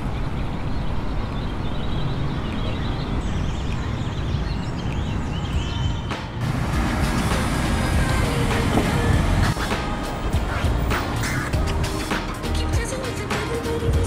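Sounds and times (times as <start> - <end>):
small birds chirping: 0.0 - 6.4
city traffic rumble: 0.0 - 14.0.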